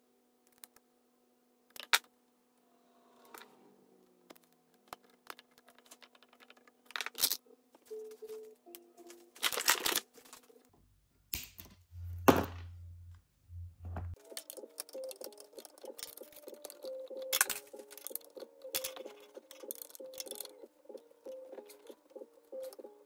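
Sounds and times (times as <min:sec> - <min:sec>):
background music with deep bass: 0:13.6 - 0:23.0.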